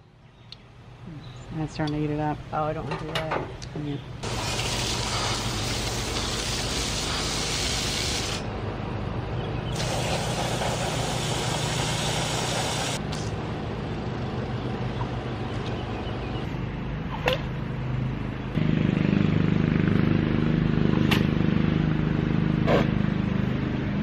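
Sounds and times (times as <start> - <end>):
engine-like hum: 0.0 - 24.0
hose spraying water: 4.2 - 8.5, 9.8 - 13.0.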